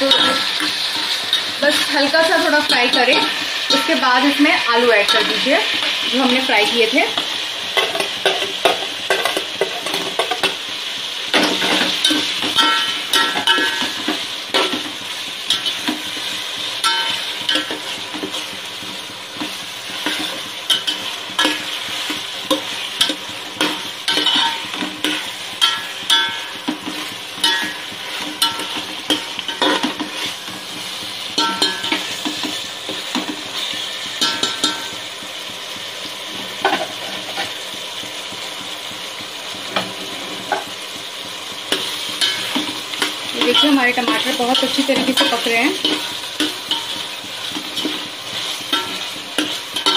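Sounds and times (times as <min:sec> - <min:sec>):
metal spoon scraping a pot: 0:00.0 - 0:06.5, 0:19.4 - 0:35.0, 0:41.7 - 0:49.9
food sizzling in hot oil: 0:00.0 - 0:49.9.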